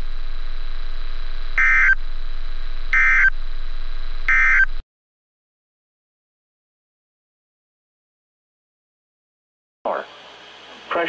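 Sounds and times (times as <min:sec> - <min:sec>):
steady radio hum: 0:00.0 - 0:04.8, 0:09.9 - 0:11.0
warbling digital data tones: 0:01.6 - 0:02.0, 0:02.9 - 0:03.4, 0:04.3 - 0:04.8.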